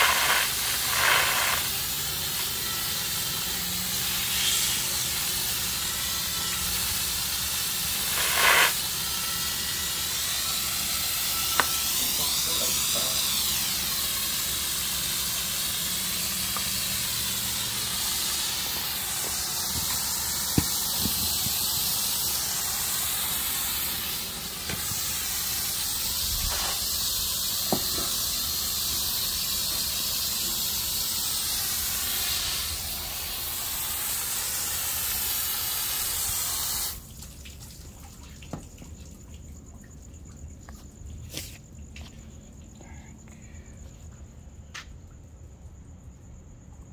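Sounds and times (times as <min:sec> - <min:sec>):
hose nozzle spray hissing: 0:00.0 - 0:37.0.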